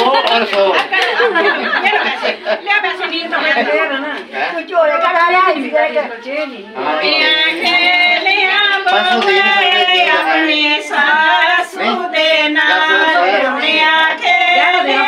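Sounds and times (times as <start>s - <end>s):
woman singing: 6.4s - 15.0s.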